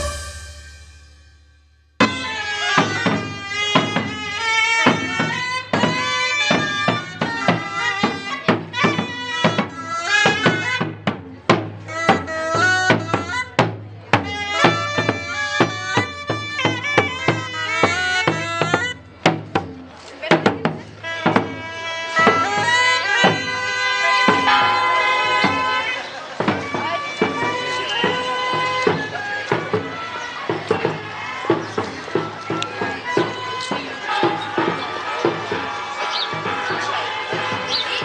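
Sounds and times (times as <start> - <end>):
high pipe melody: 0.0 - 3.8
steady drum beat: 0.0 - 38.0.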